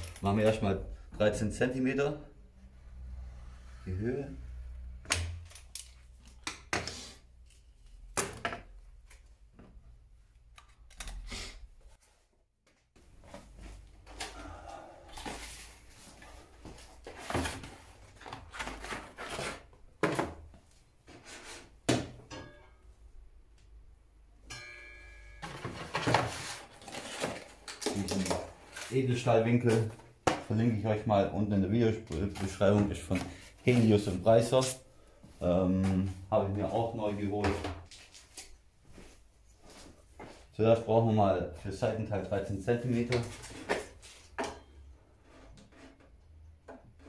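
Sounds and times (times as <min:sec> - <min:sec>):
tools knocking and clattering: 0:21.9 - 0:22.8, 0:24.5 - 0:26.5.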